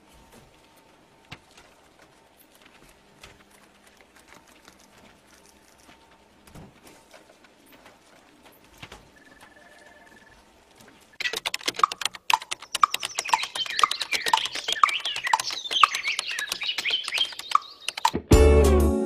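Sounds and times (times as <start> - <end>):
birds chirping: 7.4 - 18.2
rapid keyboard typing: 11.2 - 18.2
regular ticking: 11.2 - 18.2
music: 18.1 - 19.0.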